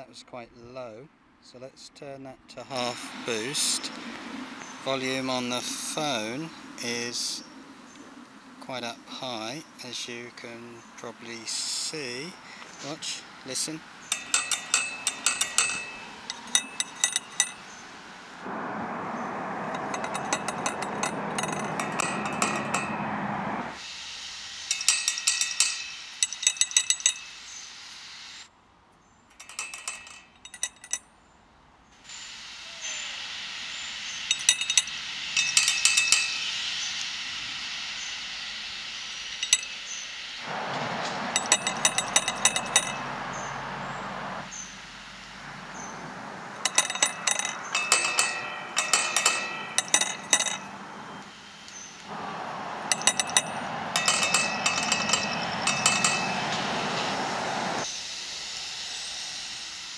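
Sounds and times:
background hiss: 0.0 - 19.6, 23.0 - 31.0, 31.6 - 59.9
metal gate latch clinking: 12.0 - 17.9, 19.6 - 23.7, 24.7 - 27.3, 29.3 - 31.0, 34.3 - 36.5, 39.4 - 39.8, 40.5 - 43.5, 45.8 - 57.3.

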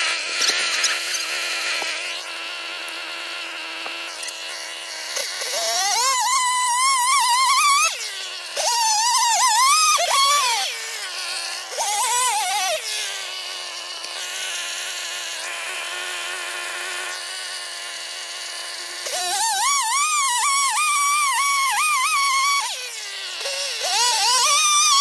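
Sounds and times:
chainsaw revving and idling: 0.0 - 25.0.

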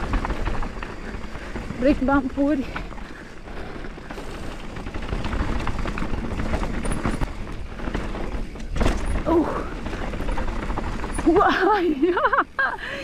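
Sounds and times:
mountain bike rattling over bumps: 0.0 - 13.0.

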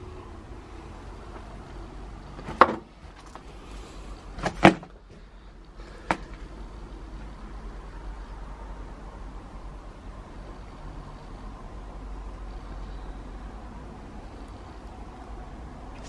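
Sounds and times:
low steady hiss: 0.0 - 16.0.

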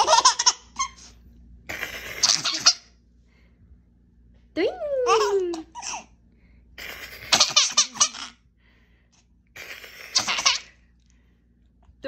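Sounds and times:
baby laughing: 0.0 - 1.1, 1.7 - 2.9, 5.0 - 6.1, 6.8 - 8.4, 9.6 - 10.8.

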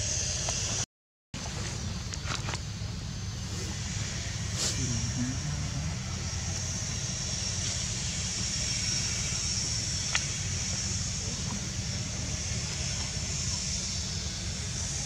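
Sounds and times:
high hiss: 3.1 - 15.0.

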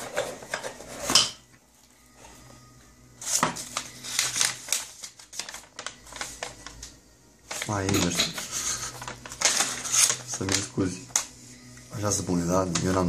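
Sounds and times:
paper sheet rustling and crackling: 3.2 - 11.3.

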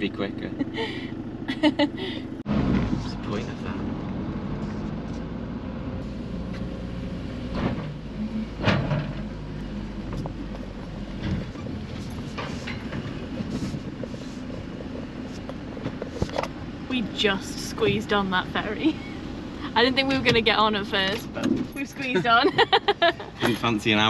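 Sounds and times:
vehicle engine hum: 0.0 - 24.0
clunks and knocks: 7.4 - 16.6, 20.1 - 21.9.

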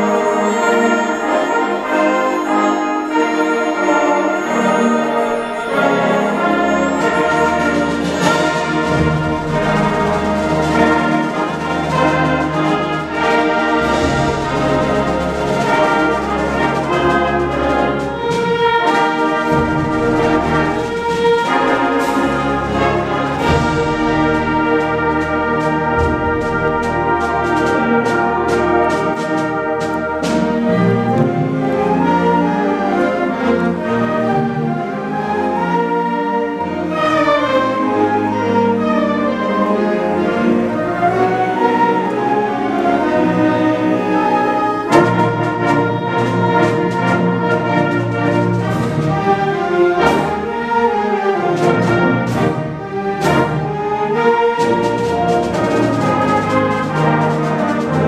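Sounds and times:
sharp percussion strokes: 0.0 - 32.8
concert band playing: 0.0 - 58.0.

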